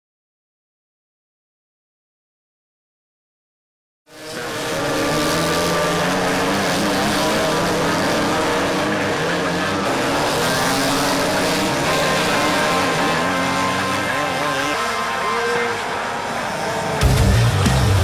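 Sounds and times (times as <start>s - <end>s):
kart engines racing: 4.1s - 18.0s.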